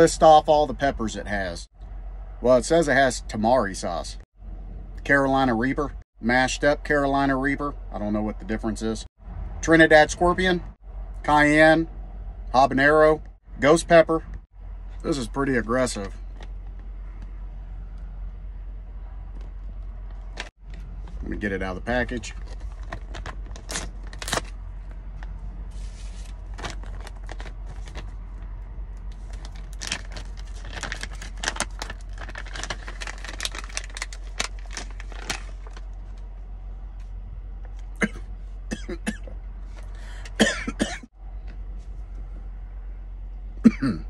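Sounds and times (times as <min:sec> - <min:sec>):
plastic bag crinkling: 0:25.8 - 0:28.2, 0:29.1 - 0:36.0.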